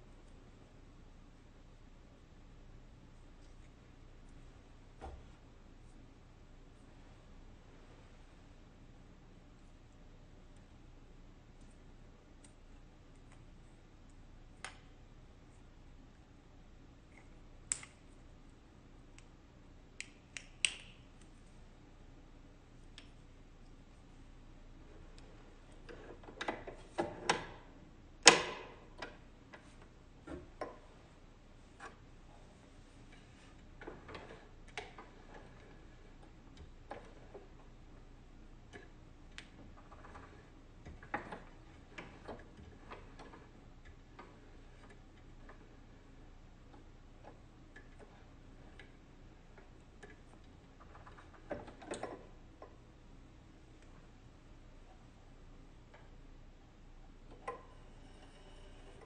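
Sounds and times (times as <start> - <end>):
faint clicks of thread handling: 11.5 - 16.2, 17.0 - 21.7
small clicks: 17.1 - 18.1.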